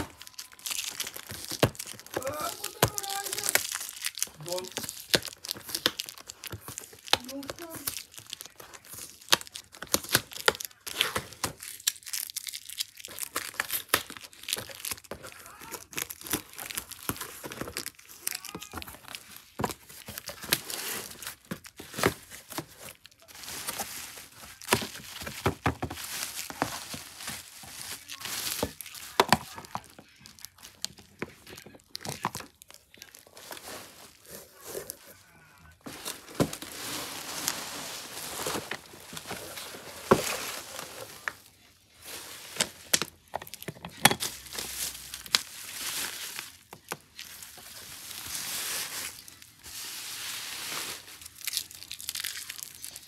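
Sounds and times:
bubble wrap crackles: 0.0 - 53.0
packaging crinkling and rustling: 0.0 - 53.0.

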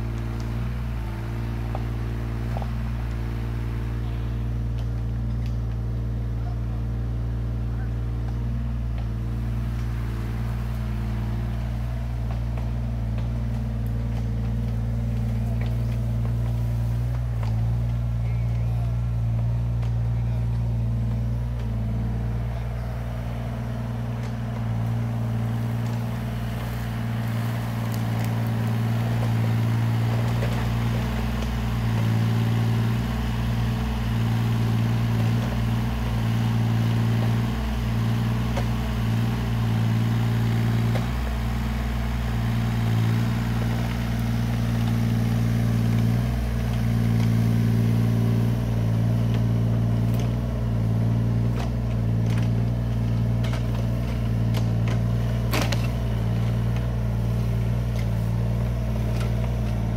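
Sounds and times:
diesel engine running steadily: 0.0 - 59.9.

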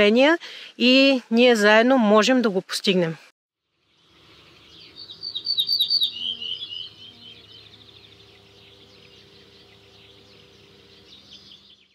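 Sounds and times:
songbirds twittering: 3.7 - 11.9
faint steady hum: 4.0 - 11.8.

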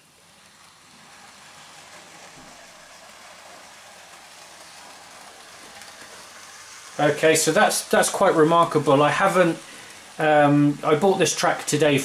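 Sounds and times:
model train motor whirring: 0.0 - 12.0.

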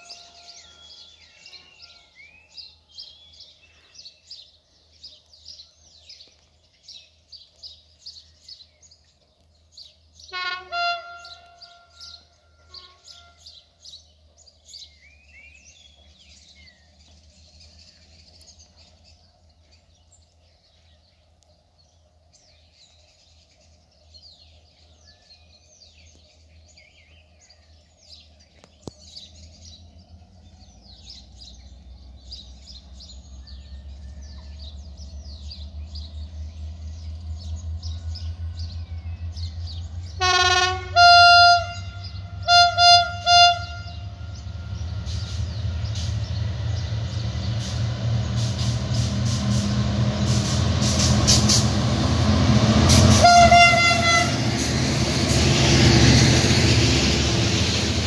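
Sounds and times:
distant train horn blast: 0.0 - 2.7, 10.2 - 13.9, 37.9 - 58.0
approaching train rumble: 0.0 - 58.0
birds chirping: 0.0 - 58.0.

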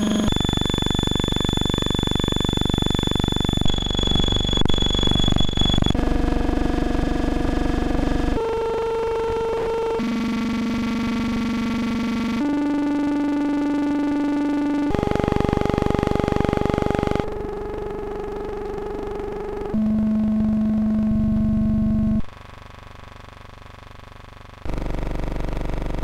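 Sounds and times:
heavy low buzz: 0.0 - 22.3.

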